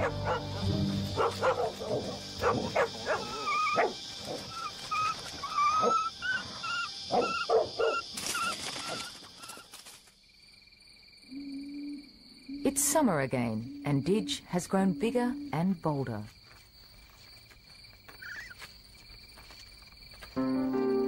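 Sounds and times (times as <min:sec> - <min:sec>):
dog barking: 0:00.0 - 0:04.4, 0:07.1 - 0:08.1
high wavering cries: 0:03.0 - 0:09.6.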